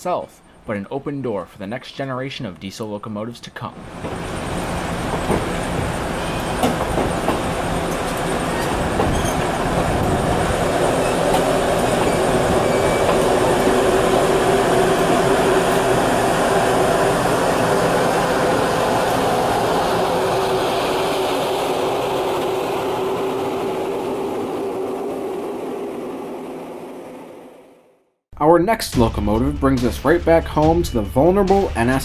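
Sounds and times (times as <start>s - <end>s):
steel wheels rumbling on rails: 3.8s - 27.9s
wheels clacking over rail joints: 3.9s - 16.3s.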